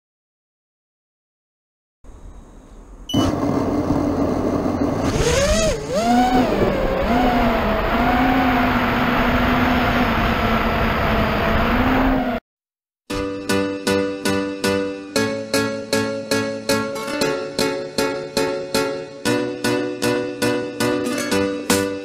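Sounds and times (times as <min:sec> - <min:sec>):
drone motors whining: 0:03.1 - 0:12.4.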